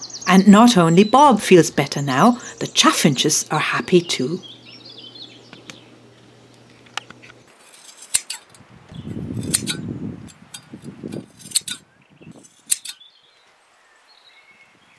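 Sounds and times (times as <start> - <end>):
rustling: 6.2 - 11.8
sheep shears snipping: 6.7 - 8.6, 9.4 - 11.8, 12.4 - 13.0.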